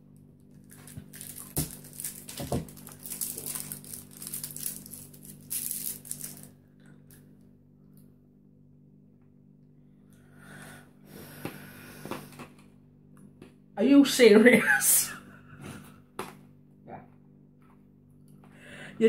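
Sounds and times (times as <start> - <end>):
faint steady hum: 0.0 - 19.0
candy wrapper crinkling: 0.4 - 6.6
candy clicking against teeth: 0.9 - 6.5.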